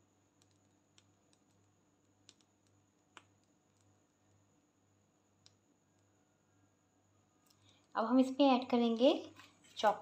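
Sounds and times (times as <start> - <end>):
faint room hum: 0.0 - 10.0.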